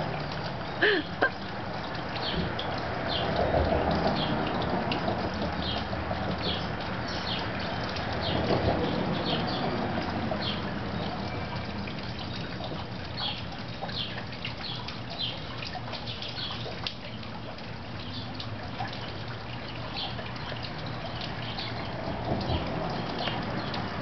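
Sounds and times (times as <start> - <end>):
fountain trickling and splashing: 0.0 - 24.0.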